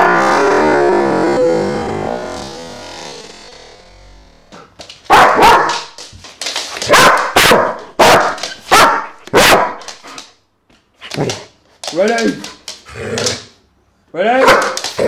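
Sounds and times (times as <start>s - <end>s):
dog barking loudly: 5.1s - 6.0s, 6.8s - 9.9s, 14.4s - 15.0s.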